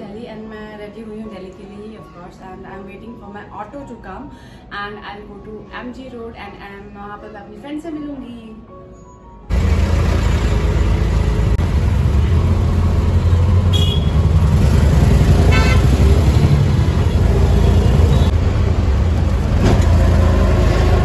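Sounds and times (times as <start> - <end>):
auto-rickshaw engine rumbling: 9.5 - 21.0
horn toots: 13.2 - 14.4, 15.3 - 18.3.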